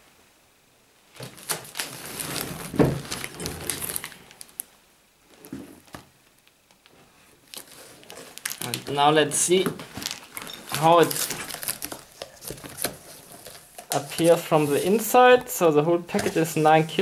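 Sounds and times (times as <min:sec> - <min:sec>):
cardboard scraping and rubbing: 0:01.2 - 0:04.1, 0:10.8 - 0:15.2.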